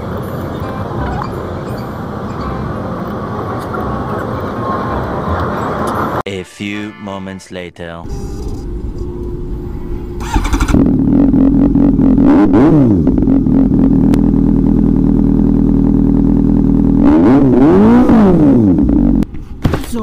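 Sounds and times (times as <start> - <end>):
motorcycle engine revving: 8.6 - 19.2.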